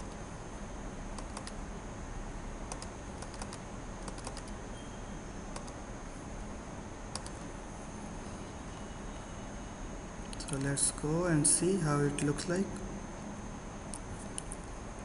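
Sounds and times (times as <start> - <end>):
computer keyboard keys clicking: 1.2 - 1.6, 2.7 - 4.6, 5.5 - 5.8, 7.1 - 7.4
mouse clicks: 1.2 - 1.6, 5.5 - 5.8, 7.1 - 7.4.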